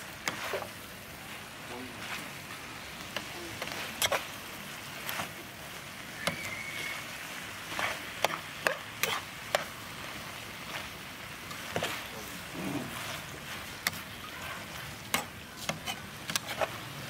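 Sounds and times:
metal spatula scraping a pan: 0:00.0 - 0:00.8, 0:01.9 - 0:05.5, 0:07.6 - 0:09.8, 0:10.6 - 0:17.0
food sizzling: 0:00.0 - 0:17.0.

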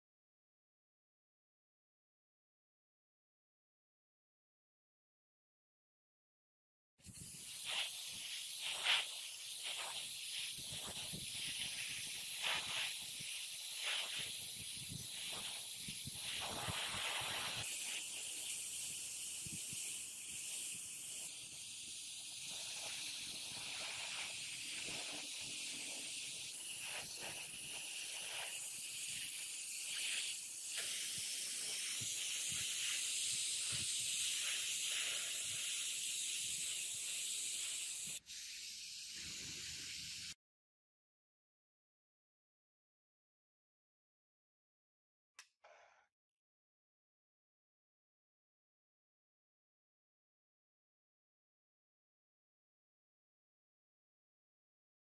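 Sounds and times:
spray paint hissing: 0:07.0 - 0:40.4.

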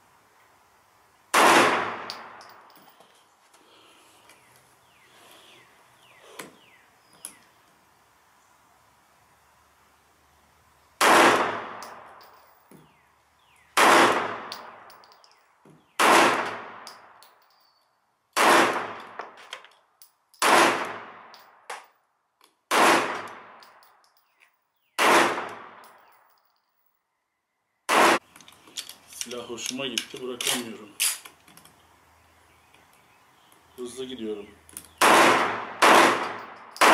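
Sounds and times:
pistol shots echoing: 0:01.3 - 0:02.6, 0:11.0 - 0:12.2, 0:13.8 - 0:15.0, 0:16.0 - 0:17.1, 0:18.4 - 0:19.2, 0:20.4 - 0:21.4, 0:22.7 - 0:23.7, 0:25.0 - 0:25.9, 0:27.9 - 0:28.2, 0:35.0 - 0:36.9.

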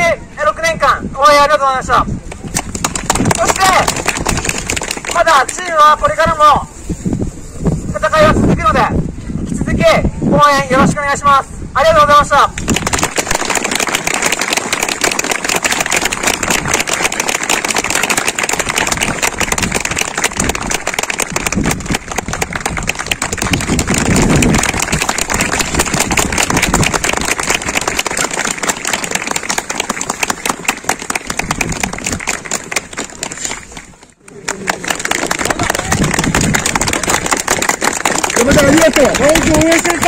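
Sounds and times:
crowd applauding: 0:02.6 - 0:05.6, 0:12.6 - 0:40.0.

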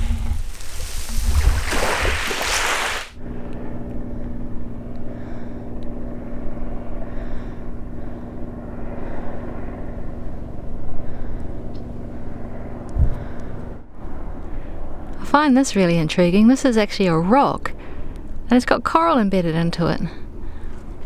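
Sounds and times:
small waves washing on beach: 0:00.4 - 0:03.2
low motor-like hum with tones: 0:03.1 - 0:21.0.

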